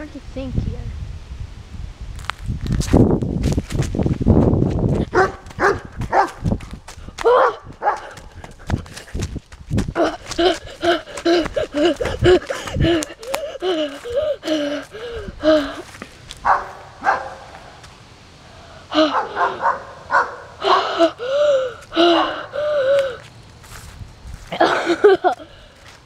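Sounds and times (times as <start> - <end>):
running footsteps: 2.3 - 18.0, 20.9 - 26.0
boy panting: 4.9 - 16.2, 18.5 - 19.7, 20.6 - 23.8, 24.5 - 26.0.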